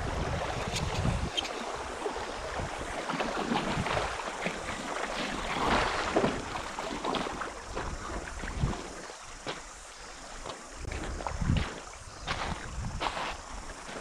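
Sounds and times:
wind rumble on microphone: 0:00.0 - 0:04.8, 0:07.6 - 0:09.2, 0:10.8 - 0:13.7
river water rippling and splashing: 0:00.0 - 0:14.0.

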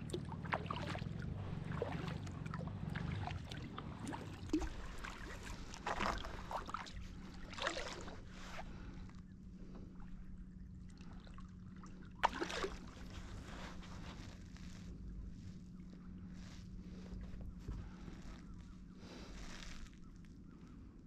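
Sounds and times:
paddle splashing in water: 0:00.0 - 0:08.7, 0:12.2 - 0:14.8.

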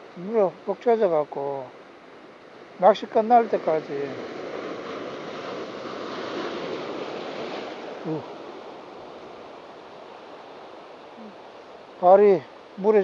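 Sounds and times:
surf washing over rocks: 0:00.0 - 0:13.0.

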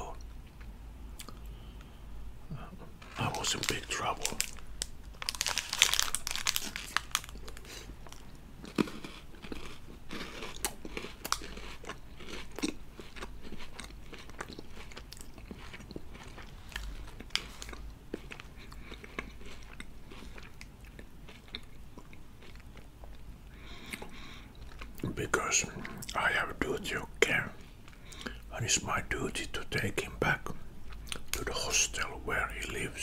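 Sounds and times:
crunchy wafer chewing: 0:03.0 - 0:26.2.

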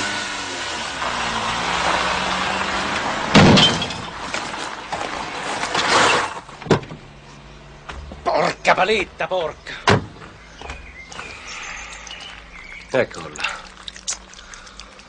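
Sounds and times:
car underside crunching on road: 0:00.8 - 0:15.0
scraping bang: 0:03.2 - 0:07.0.

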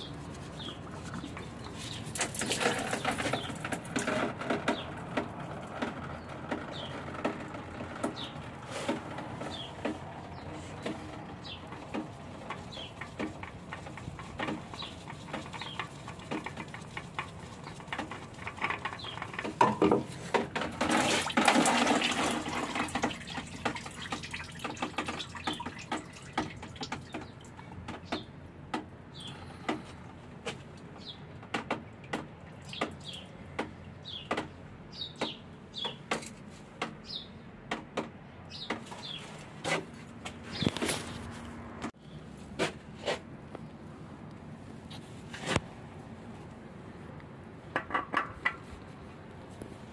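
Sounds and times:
oil splashing: 0:00.0 - 0:04.1, 0:20.6 - 0:27.6
clicks and knocks of hand work: 0:00.7 - 0:41.2.

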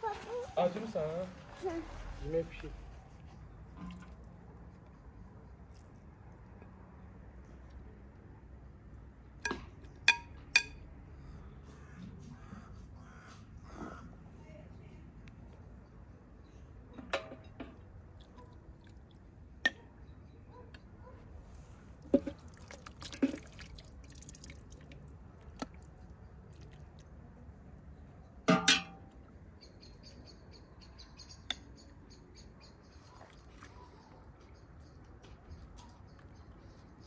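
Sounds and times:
metal ladle clinking on cauldron: 0:28.5 - 0:29.1.

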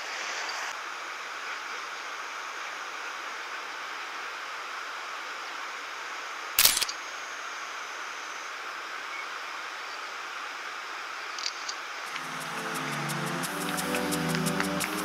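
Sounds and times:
camera shutter click: 0:06.6 - 0:07.0
steady rushing background noise: 0:10.0 - 0:15.0.

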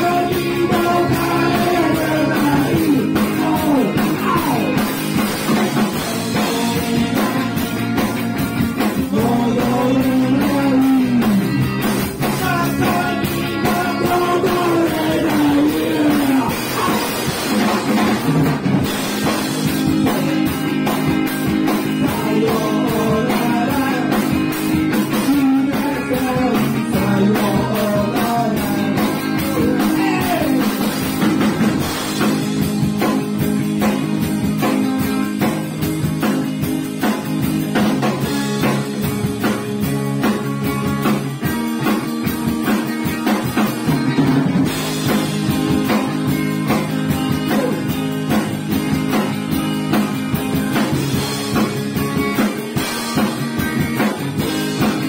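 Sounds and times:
man singing: 0:00.0 - 0:04.8, 0:05.8 - 0:07.7, 0:08.9 - 0:17.4, 0:21.8 - 0:31.1, 0:47.3 - 0:48.0
drum kit beat: 0:00.0 - 0:55.0
electric guitars: 0:00.0 - 0:55.0.

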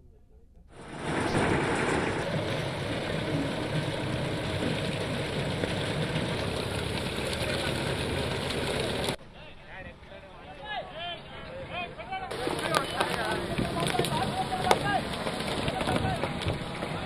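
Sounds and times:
road roller engine running: 0:00.8 - 0:09.2, 0:12.3 - 0:17.0.

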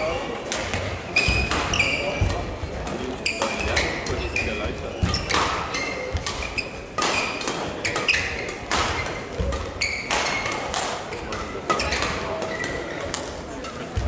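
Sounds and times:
court shoes squeaking: 0:00.0 - 0:14.0
rackets striking shuttlecock: 0:00.4 - 0:14.0.

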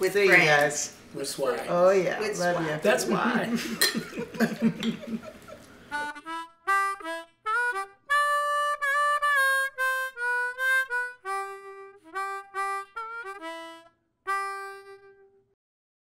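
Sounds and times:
solo harmonica melody: 0:05.9 - 0:15.6.

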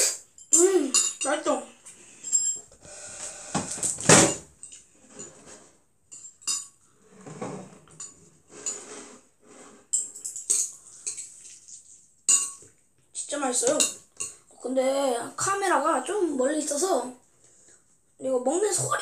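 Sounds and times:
fork clinking on ceramic bowl: 0:12.3 - 0:12.7.

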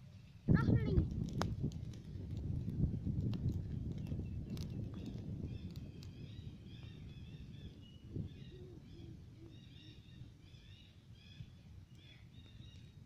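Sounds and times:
low outdoor rumble: 0:00.0 - 0:13.0
small birds chirping: 0:03.8 - 0:13.0.

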